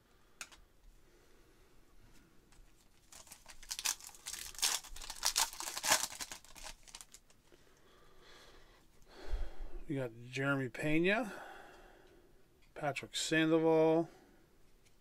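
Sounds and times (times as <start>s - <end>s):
foil wrapper tearing and crinkling: 2.9s - 7.4s.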